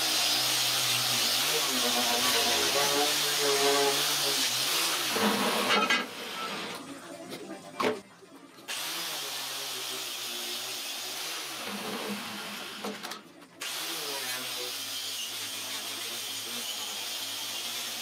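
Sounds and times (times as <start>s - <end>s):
angle grinder grinding steel: 0.0s - 6.8s, 13.6s - 18.0s.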